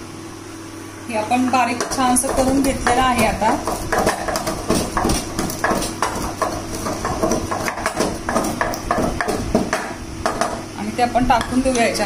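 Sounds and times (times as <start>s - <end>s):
pestle knocking in a mortar: 1.4s - 10.7s.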